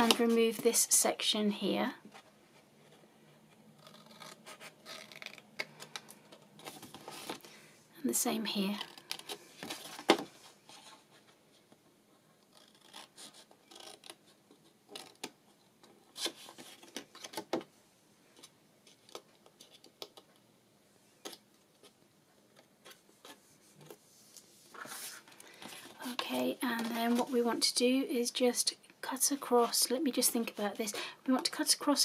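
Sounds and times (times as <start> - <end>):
card rustling and sliding: 3.9 - 7.6, 22.9 - 26.0.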